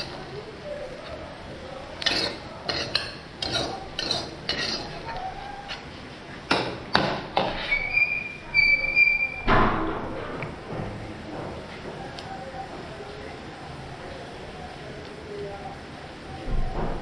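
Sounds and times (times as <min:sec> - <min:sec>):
heavy knock: 0:09.5 - 0:11.6.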